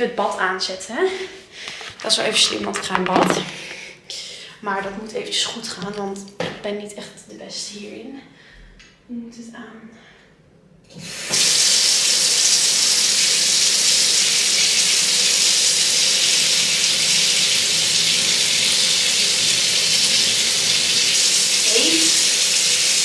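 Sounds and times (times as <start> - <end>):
water gushing into bathtub: 11.0 - 23.0.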